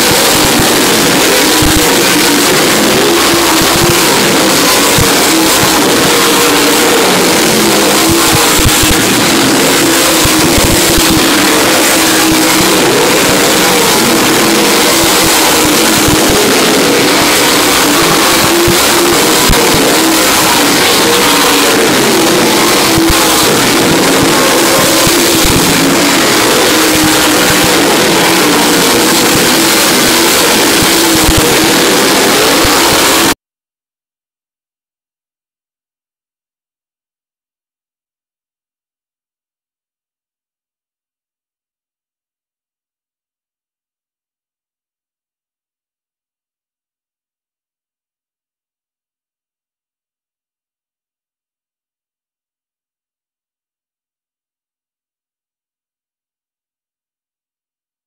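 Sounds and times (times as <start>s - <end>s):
race car engines roaring: 0.0s - 33.4s.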